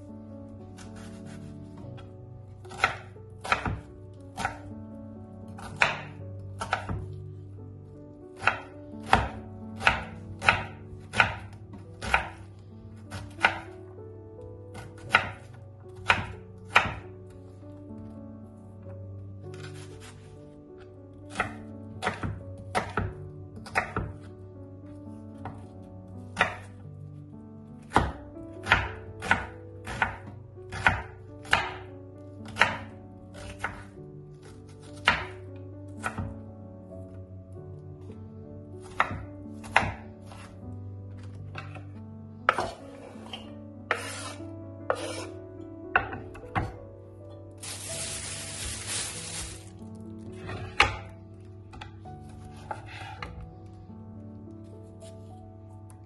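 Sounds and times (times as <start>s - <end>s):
soft background music: 0.0s - 56.0s
knife chopping on cutting board: 0.8s - 4.6s, 5.5s - 7.1s, 8.4s - 12.4s, 13.1s - 13.7s, 14.8s - 17.0s, 21.3s - 24.2s, 26.4s - 26.7s, 27.9s - 33.8s, 35.0s - 35.4s, 36.0s - 36.3s, 38.8s - 40.5s, 42.5s - 45.3s, 51.7s - 53.3s.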